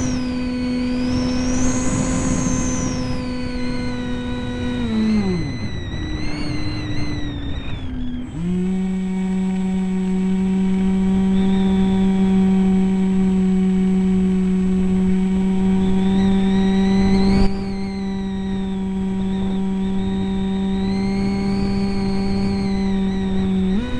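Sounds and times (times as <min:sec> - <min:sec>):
electric motor and propeller humming: 0:00.0 - 0:23.9
wind noise on microphone: 0:00.0 - 0:23.9.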